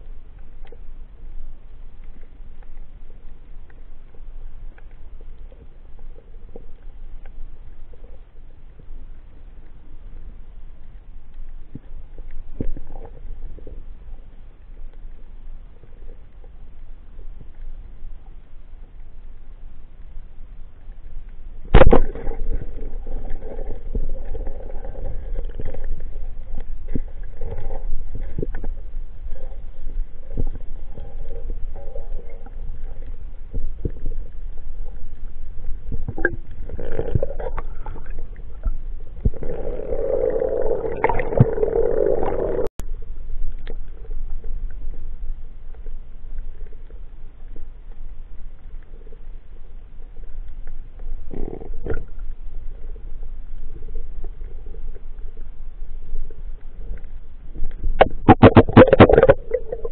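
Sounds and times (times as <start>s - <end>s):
water rushing: 39.2s - 42.7s, 58.0s - 59.9s
knocks and scrapes: 57.6s - 59.9s
muffled underwater noise: 57.7s - 59.9s.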